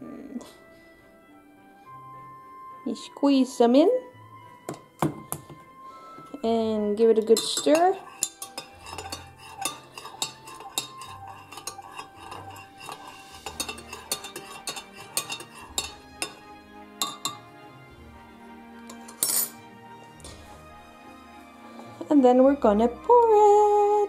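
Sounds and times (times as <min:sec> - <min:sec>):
soft background music: 0:00.0 - 0:24.0
spoon clattering down: 0:07.2 - 0:16.4, 0:17.0 - 0:17.5, 0:18.9 - 0:19.6
spoon clinking in a teapot: 0:07.2 - 0:16.4, 0:17.0 - 0:17.4, 0:18.9 - 0:19.6.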